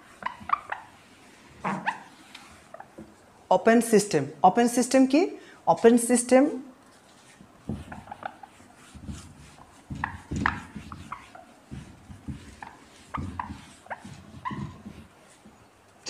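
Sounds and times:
eraser squeaks: 0.0s - 2.9s, 7.2s - 15.7s
eraser wiping whiteboard: 0.0s - 3.0s, 6.9s - 15.7s.

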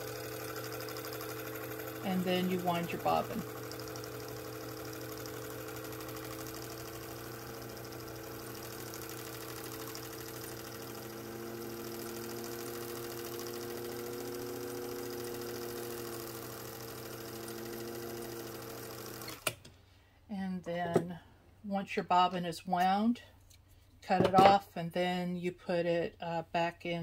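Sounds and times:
sewing machine motor humming: 0.0s - 19.6s.

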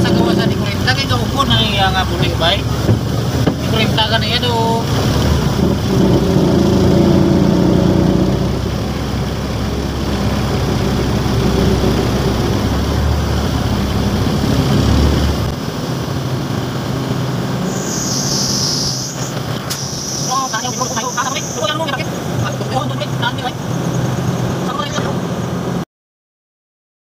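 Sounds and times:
road noise: 0.0s - 25.8s
truck engine running: 0.0s - 25.8s
short hiss: 17.7s - 21.7s.

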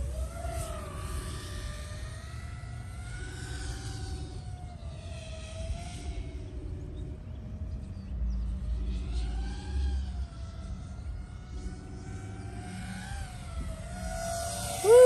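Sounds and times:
drone motors whining: 13.8s - 15.0s.

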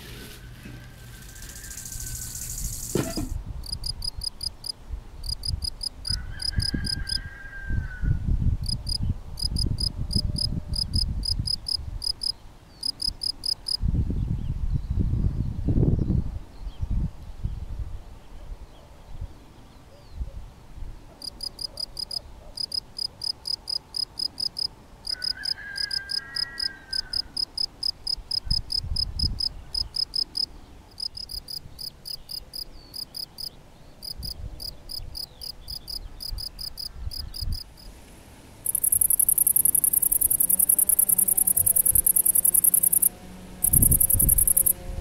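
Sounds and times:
bush-cricket buzzing song: 1.0s - 7.3s, 8.7s - 13.8s, 21.2s - 37.7s, 38.7s - 45.0s
cricket chirping: 1.2s - 7.2s, 8.7s - 13.8s, 21.2s - 37.7s, 38.6s - 44.8s.

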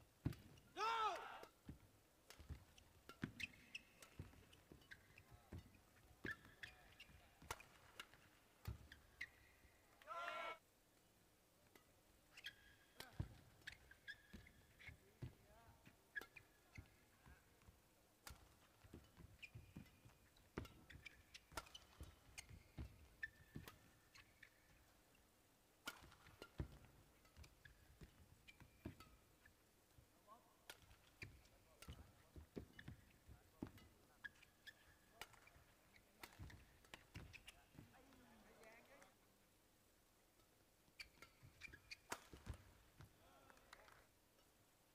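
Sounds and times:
shoes squeaking on court: 1.6s - 9.8s, 12.3s - 25.2s, 25.9s - 29.7s, 30.7s - 39.1s, 40.9s - 43.2s
racket striking shuttlecock: 18.2s - 24.6s, 25.8s - 29.2s.

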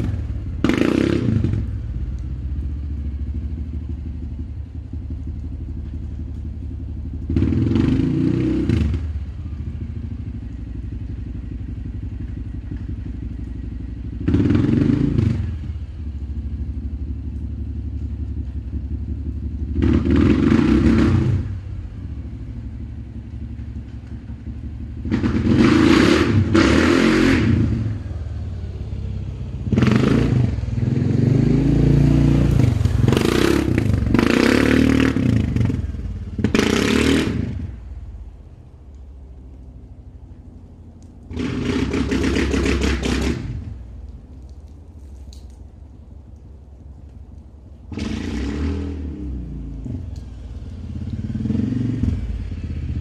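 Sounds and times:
engine revving in bursts: 0.0s - 1.8s, 7.2s - 9.2s, 14.1s - 15.8s, 19.7s - 21.6s, 25.0s - 28.1s, 29.6s - 37.8s, 41.3s - 43.9s, 47.9s - 53.0s.

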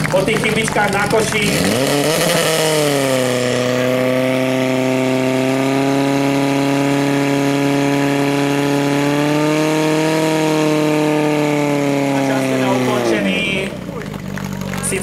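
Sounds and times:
pump engine running: 0.0s - 15.0s.

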